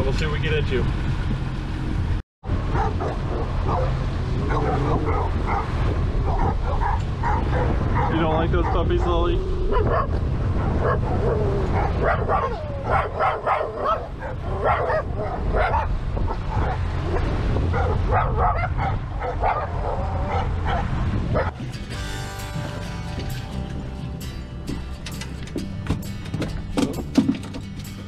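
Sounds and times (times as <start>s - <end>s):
boat engine rumble: 0.0s - 28.0s
music: 21.6s - 28.0s.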